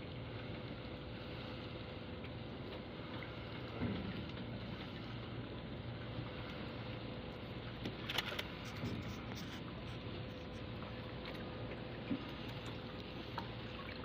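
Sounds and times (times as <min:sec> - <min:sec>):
low hum: 0:00.0 - 0:14.0
net scraping on boat edge: 0:08.0 - 0:10.7.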